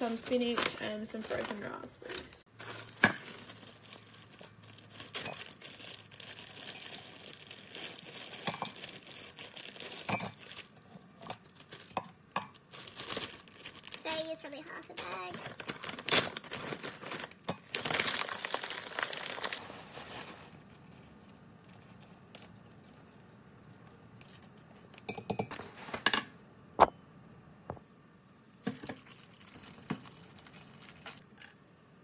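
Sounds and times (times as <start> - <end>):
plastic packaging crinkling: 0.2 - 23.0, 28.6 - 31.5.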